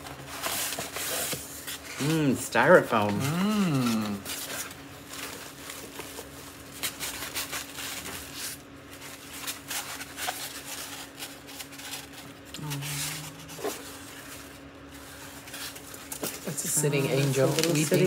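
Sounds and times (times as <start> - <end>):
packaging rustling and scraping: 0.0 - 2.1, 3.0 - 18.0
faint steady hum: 0.0 - 18.0.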